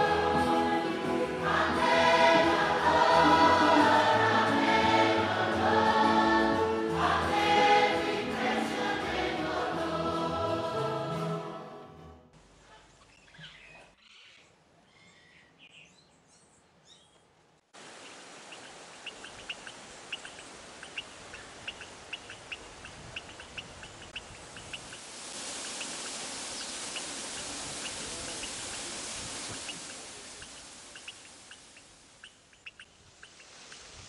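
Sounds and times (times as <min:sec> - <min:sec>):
flowing water hiss: 0:00.0 - 0:09.1, 0:17.7 - 0:34.0
birds chirping: 0:18.0 - 0:25.0, 0:25.6 - 0:33.9.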